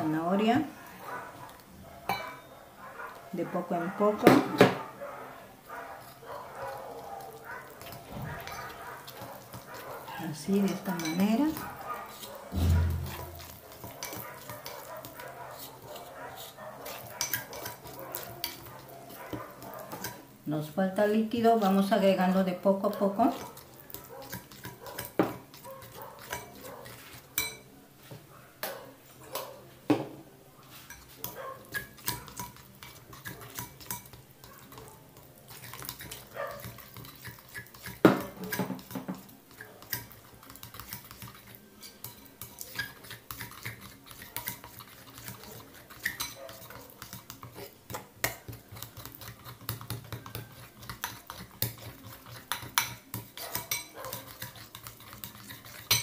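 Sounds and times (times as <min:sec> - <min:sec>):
utensil stirring batter in a bowl: 0:05.6 - 0:28.2, 0:30.6 - 0:56.0
utensil clinking against bowl: 0:27.4 - 0:27.7, 0:35.5 - 0:56.0.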